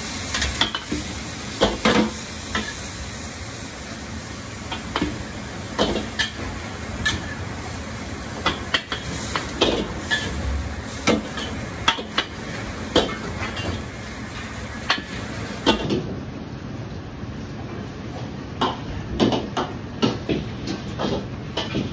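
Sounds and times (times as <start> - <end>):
noodles sizzling in oil: 0.0 - 15.8.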